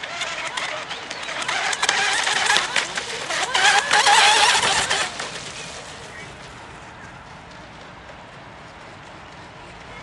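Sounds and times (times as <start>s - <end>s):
electric motor whining: 0.0s - 5.7s.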